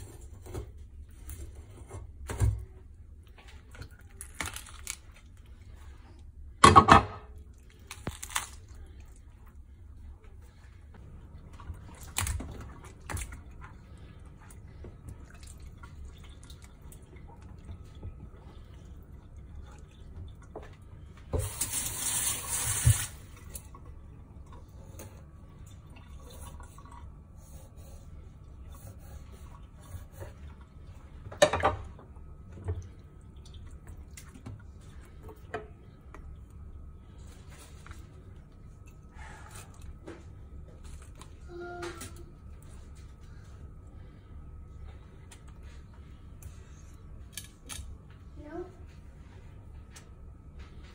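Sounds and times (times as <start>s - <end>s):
tap water running: 14.8s - 24.0s.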